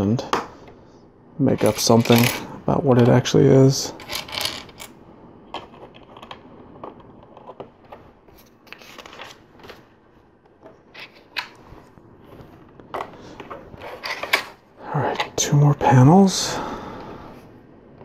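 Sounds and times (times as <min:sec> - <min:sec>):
plastic pieces clicking: 0:01.6 - 0:02.4, 0:04.0 - 0:04.9.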